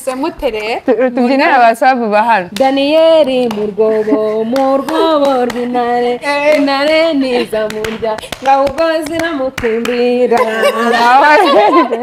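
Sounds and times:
hand claps: 3.4s - 3.7s, 4.5s - 5.8s, 6.5s - 10.5s.

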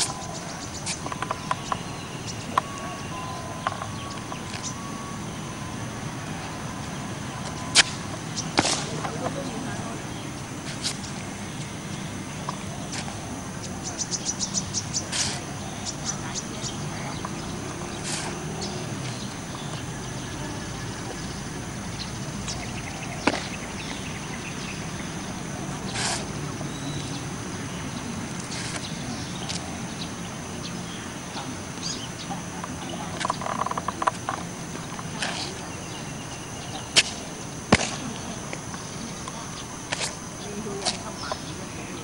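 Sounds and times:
steady background hiss: 0.0s - 42.0s
foot stamps: 22.0s - 24.1s
sharp snaps of strikes: 36.9s - 38.3s.

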